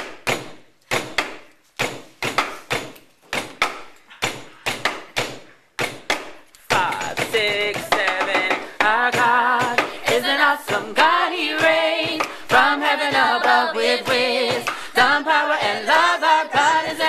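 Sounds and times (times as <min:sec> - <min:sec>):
people singing: 0:06.7 - 0:17.0.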